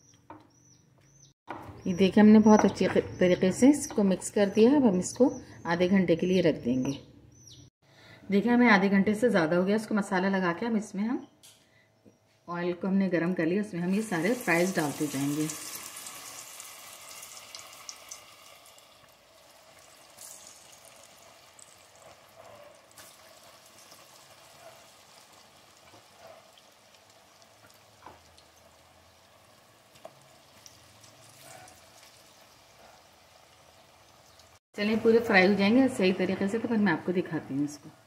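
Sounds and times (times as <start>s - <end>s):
fries sizzling in hot oil: 13.9s - 34.6s.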